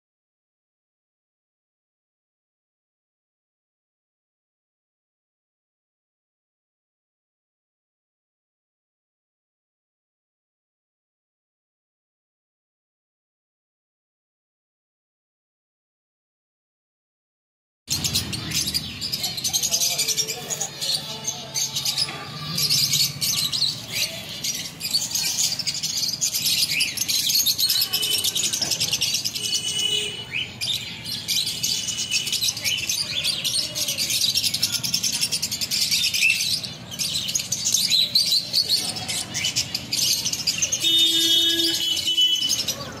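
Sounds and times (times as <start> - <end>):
birds chirping: 17.9 - 43.0.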